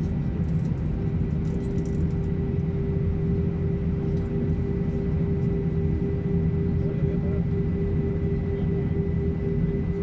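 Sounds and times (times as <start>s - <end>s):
steady cabin hum: 2.1s - 10.0s.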